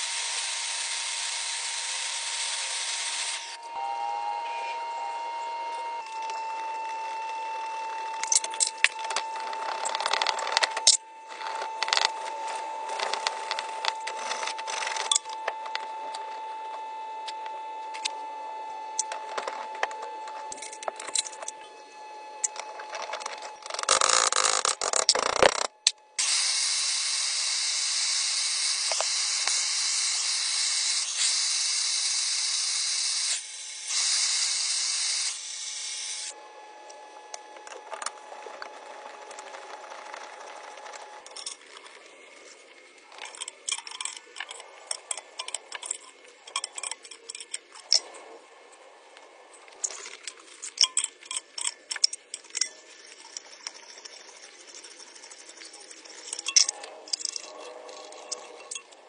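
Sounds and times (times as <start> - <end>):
loud steady hiss: 0.0 - 3.5.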